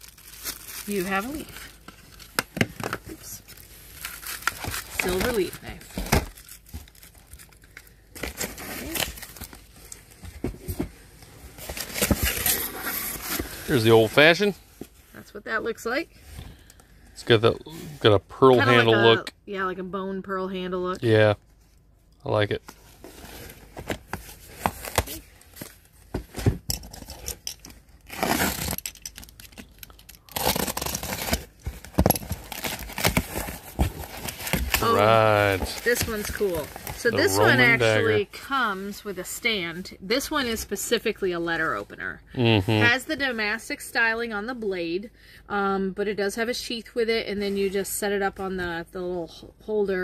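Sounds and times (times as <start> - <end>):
packing tape tearing: 0.0 - 10.0, 24.1 - 25.8, 26.8 - 38.2
cardboard boxes and plastic rustling: 0.0 - 15.1, 22.5 - 38.3
box cutter slitting tape: 28.1 - 29.5, 30.3 - 33.5
cardboard rustling: 30.4 - 38.2.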